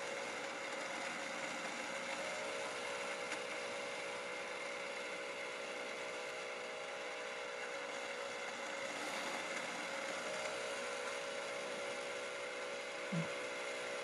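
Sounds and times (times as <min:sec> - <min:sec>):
machine motor humming: 0:12.8 - 0:14.0.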